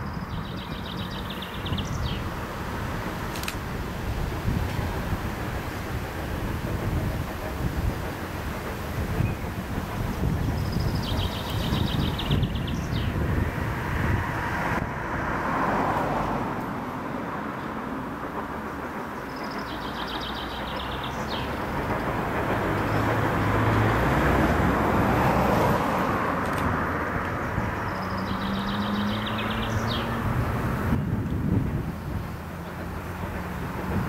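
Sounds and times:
distant steam locomotive rumbling: 0.0s - 34.0s.

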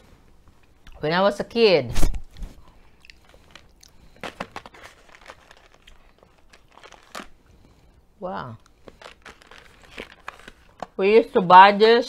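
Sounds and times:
chewing crunchy candy: 2.6s - 11.0s.

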